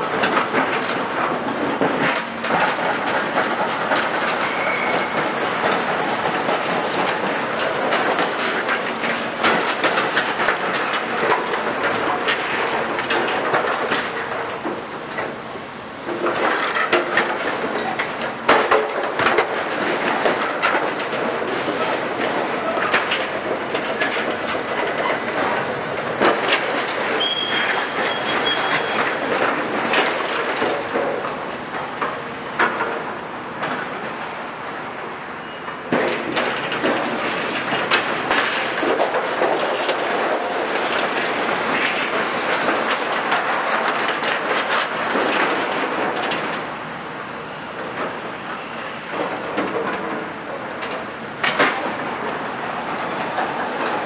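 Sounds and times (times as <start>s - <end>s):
demolition excavators crunching: 0.0s - 34.8s, 35.7s - 54.0s
high metal squeal: 27.2s - 29.0s.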